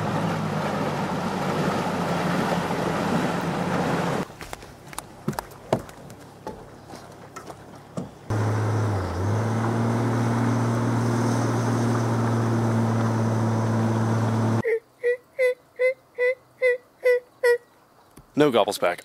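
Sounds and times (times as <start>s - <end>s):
road noise of towed boat: 0.0s - 14.6s.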